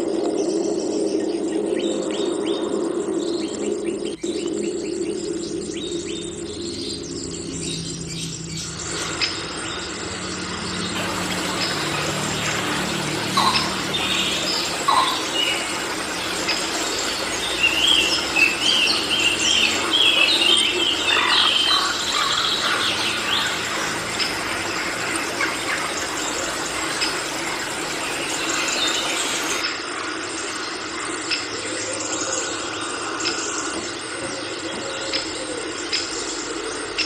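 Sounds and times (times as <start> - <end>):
forest background hiss: 0.0 - 37.0
bird high call notes: 7.4 - 29.6.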